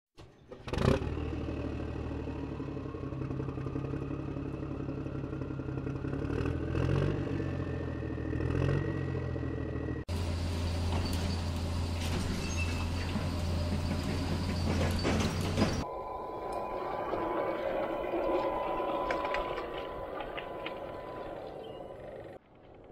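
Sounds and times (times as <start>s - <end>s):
engine running with rising whine: 0.5s - 22.4s
electric model excavator humming: 10.1s - 16.7s.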